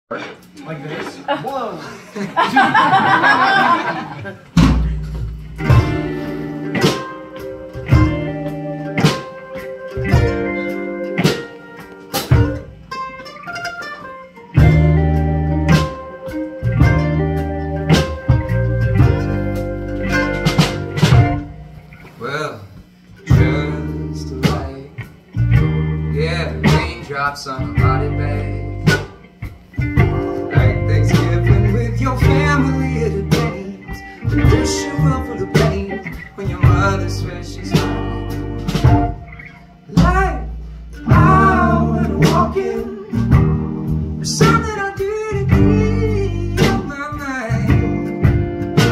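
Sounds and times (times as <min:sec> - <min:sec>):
low bass notes: 0:04.6 - 0:09.1, 0:14.6 - 0:21.9, 0:23.2 - 0:48.9
mandolin picking a melody: 0:12.6 - 0:20.5.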